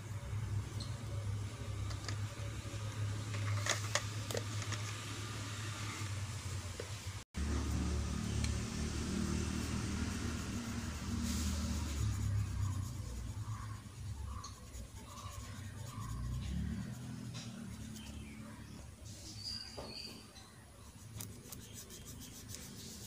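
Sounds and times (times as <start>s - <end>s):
colored pencil scratching on paper: 9.4s - 18.8s, 20.8s - 23.0s.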